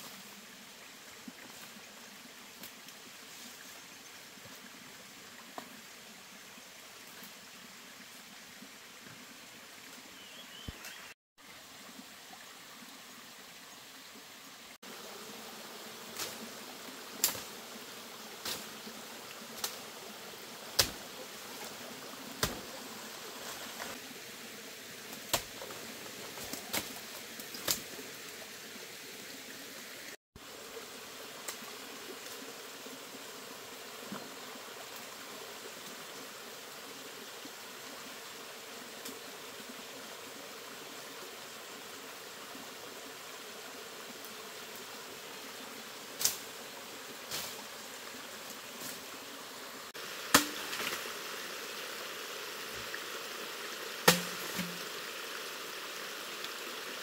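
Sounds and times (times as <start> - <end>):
forest stream rushing: 0.0 - 57.0
insects: 0.0 - 57.0
branches snapping and cracking: 50.3 - 51.0, 54.0 - 54.8.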